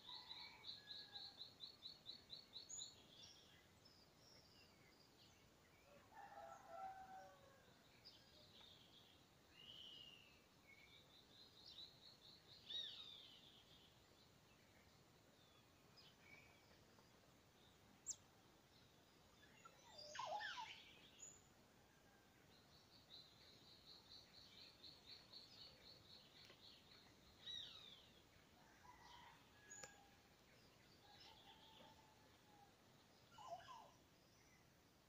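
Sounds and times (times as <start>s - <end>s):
faint steady hiss: 0.0s - 35.0s.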